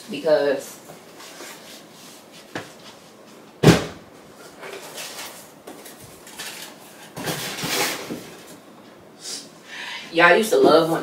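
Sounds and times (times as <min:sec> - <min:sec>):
rustling and shuffling: 0:00.6 - 0:09.0.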